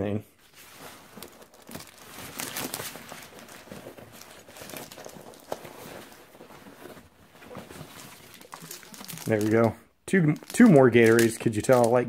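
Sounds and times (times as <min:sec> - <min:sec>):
nylon fabric rustling: 0:00.4 - 0:09.7.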